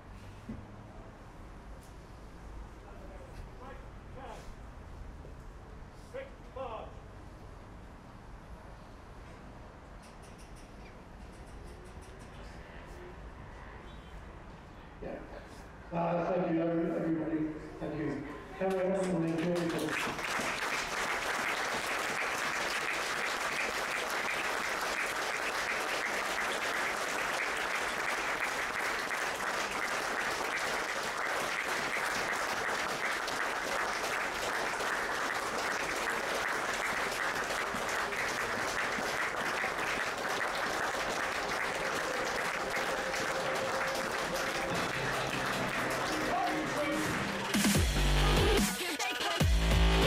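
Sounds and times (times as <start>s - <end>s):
crowd applauding: 18.6s - 48.7s.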